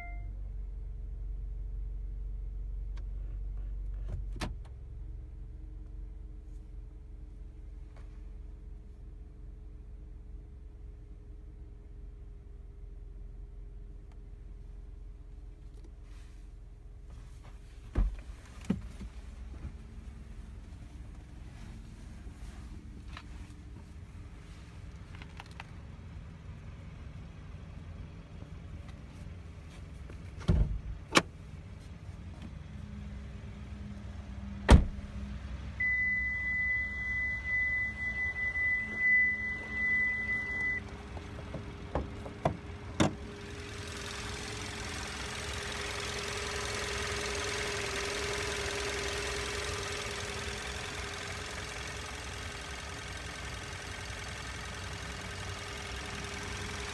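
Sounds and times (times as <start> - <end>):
high electronic beep: 0.0 - 0.3, 35.8 - 40.8.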